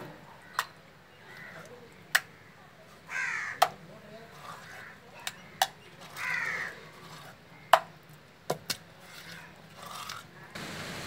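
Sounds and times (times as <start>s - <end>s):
crow cawing: 1.3s - 1.7s, 3.1s - 3.8s, 4.6s - 6.8s.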